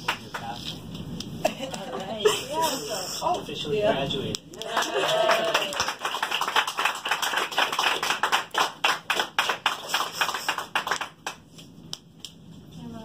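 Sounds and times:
people clapping: 0:00.0 - 0:00.6, 0:04.3 - 0:12.3.

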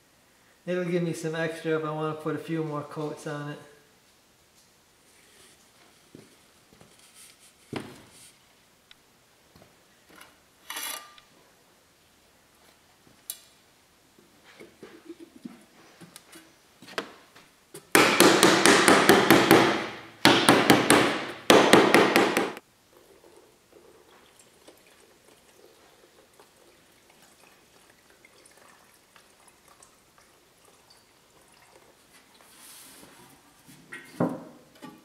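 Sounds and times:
paint pouring into cup: 0:22.9 - 0:32.7.

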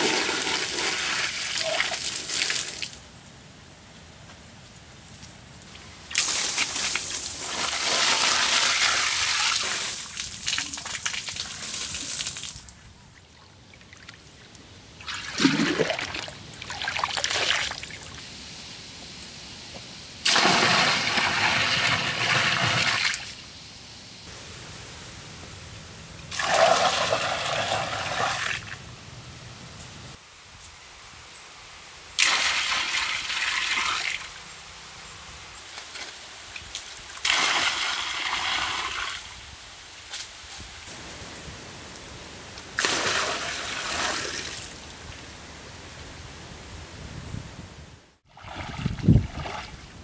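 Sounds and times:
water pouring and splashing: 0:00.0 - 0:03.0, 0:06.1 - 0:14.2, 0:15.0 - 0:18.2, 0:20.2 - 0:23.3, 0:26.3 - 0:28.8, 0:32.2 - 0:34.3, 0:35.8 - 0:39.3, 0:42.7 - 0:44.9, 0:48.2 - 0:50.0.

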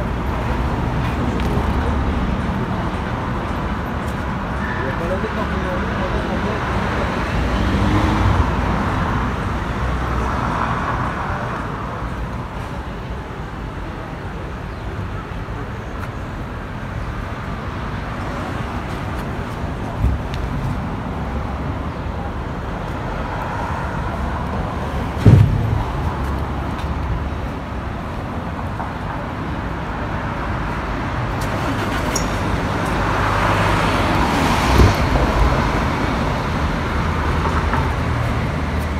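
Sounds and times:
traffic rumble: 0:00.0 - 0:38.9
dull thumps: 0:25.2 - 0:26.4.

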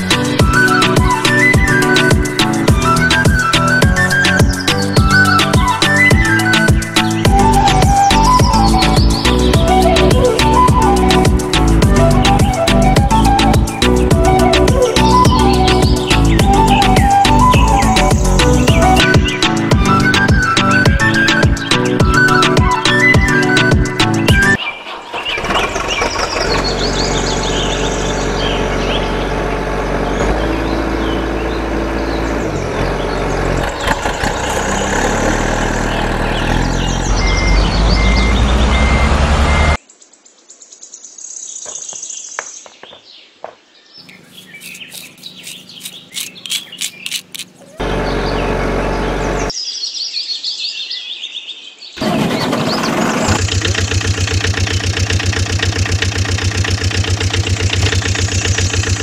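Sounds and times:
loud vehicle engine: 0:00.0 - 0:21.5, 0:25.4 - 0:39.8, 0:44.2 - 0:49.6, 0:52.0 - 0:59.0
birds chirping: 0:00.0 - 0:59.0
small clicks: 0:44.1 - 0:47.8.

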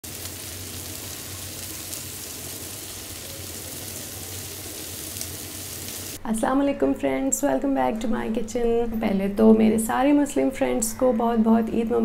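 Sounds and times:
liver sizzling in hot oil: 0:00.0 - 0:06.2.

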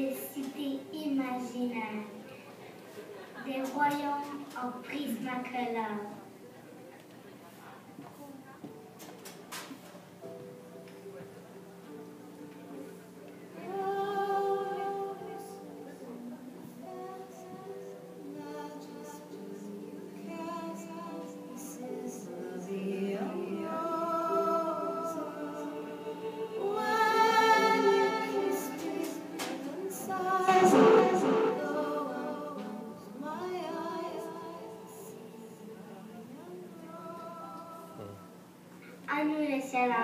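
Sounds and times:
person singing long notes: 0:13.6 - 0:38.3.

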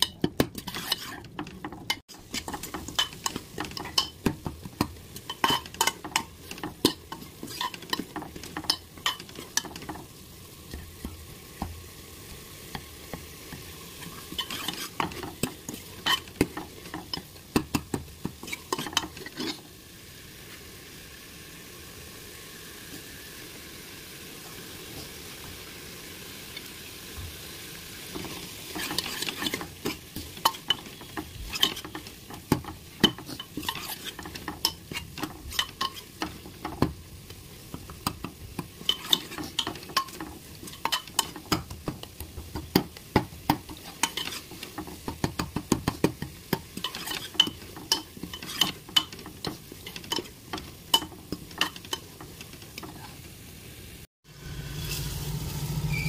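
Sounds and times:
metal ladle scraping a pan: 0:00.0 - 0:10.1, 0:13.5 - 0:19.7, 0:28.1 - 0:36.9, 0:37.7 - 0:42.8, 0:43.7 - 0:45.4, 0:46.1 - 0:53.2
food sizzling in a pan: 0:00.0 - 0:56.0.

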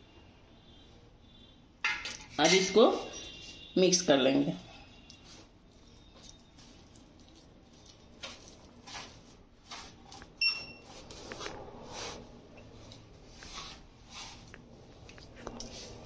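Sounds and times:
hand kneading mashed food: 0:05.0 - 0:16.0.

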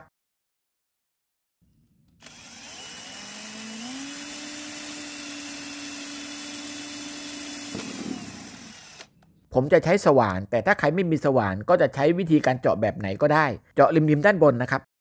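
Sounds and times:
cordless drill boring plastic: 0:02.1 - 0:09.2.

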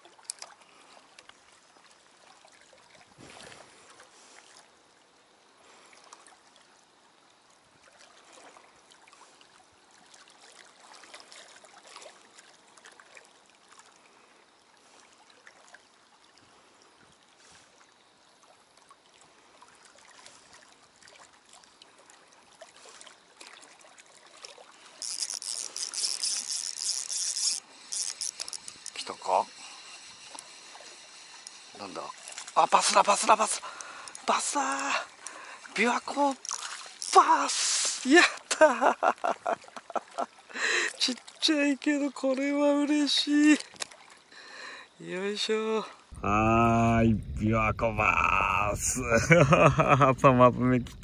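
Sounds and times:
water lapping on stones: 0:07.8 - 0:45.2
loud high-pitched hiss: 0:27.6 - 0:32.0, 0:37.4 - 0:38.2.

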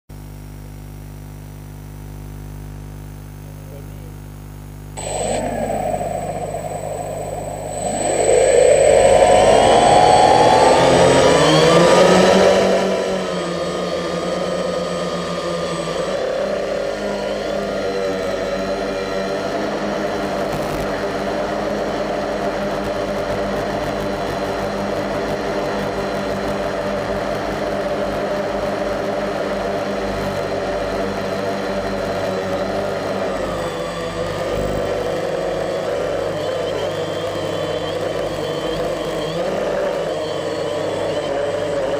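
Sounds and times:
steady electrical hum: 0:00.2 - 0:12.8
drone motors humming: 0:05.0 - 0:16.8
drone motors and propellers whirring: 0:05.0 - 0:41.9.

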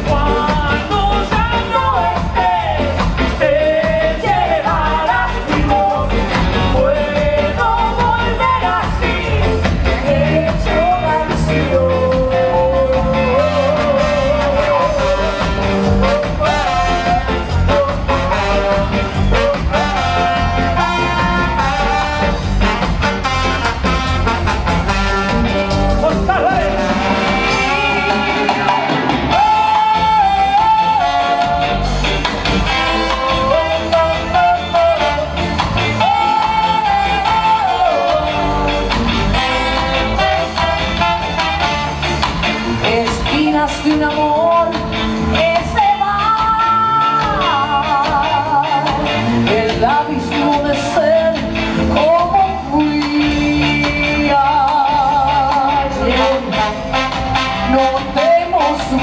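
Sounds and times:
woman singing: 0:00.0 - 0:22.3, 0:27.4 - 0:31.8, 0:35.9 - 0:38.8, 0:42.8 - 0:57.1, 0:57.7 - 0:59.0
ska band playing live: 0:00.0 - 0:59.0.

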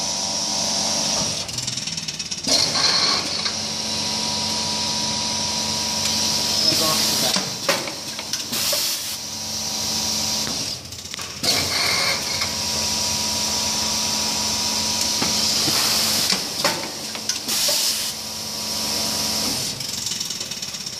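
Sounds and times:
packaging machine hiss and hum: 0:02.4 - 0:20.9
machine clicks and knocks: 0:07.2 - 0:08.5, 0:15.0 - 0:17.8.

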